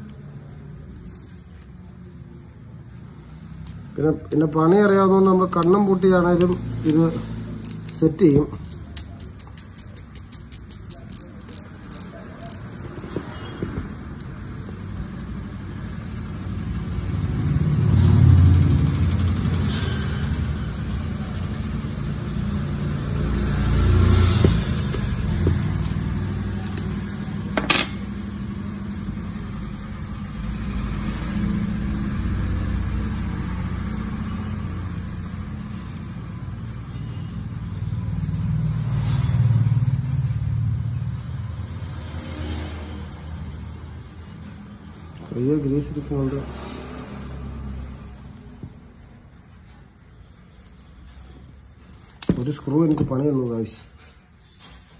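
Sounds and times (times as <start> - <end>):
vehicle engine rumble: 0.0 - 54.9.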